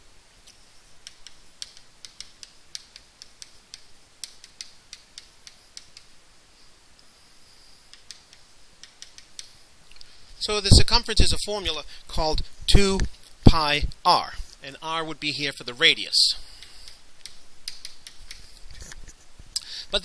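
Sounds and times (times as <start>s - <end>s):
chalk writing on blackboard: 0.5s - 9.6s.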